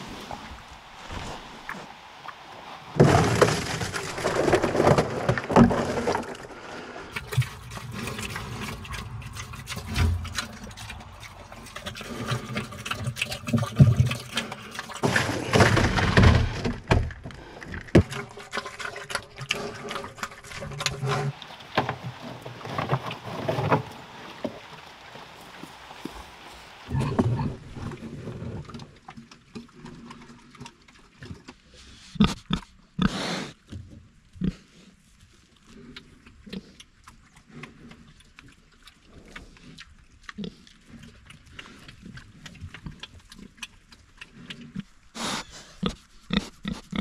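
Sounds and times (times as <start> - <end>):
pigs munching and snuffling: 0.0 - 47.0
pigs grunting: 3.0 - 16.4, 26.9 - 28.4, 29.6 - 33.6, 35.6 - 47.0.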